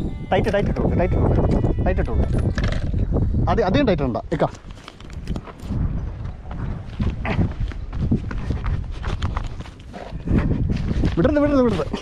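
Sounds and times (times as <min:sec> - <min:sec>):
footsteps running on sand and stones: 0:04.6 - 0:12.0.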